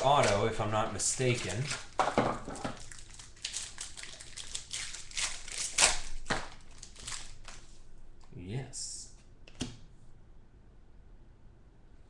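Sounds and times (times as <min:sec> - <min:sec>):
plastic wrapping crinkling and tearing: 0:00.0 - 0:07.7.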